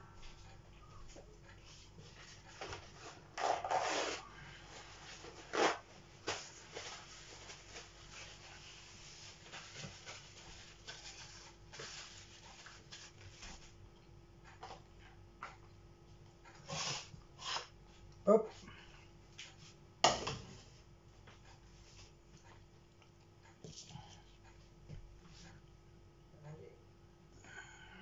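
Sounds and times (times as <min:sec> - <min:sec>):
faint hum: 0:00.0 - 0:28.0
rustling and scraping: 0:00.4 - 0:13.8.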